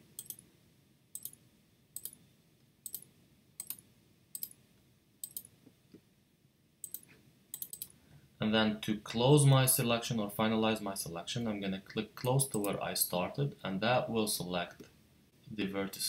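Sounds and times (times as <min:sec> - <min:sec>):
computer mouse clicks: 0:00.2 - 0:00.4, 0:01.2 - 0:01.4, 0:02.0 - 0:02.2, 0:02.8 - 0:03.8, 0:04.4 - 0:04.6, 0:05.2 - 0:05.6, 0:06.8 - 0:08.0.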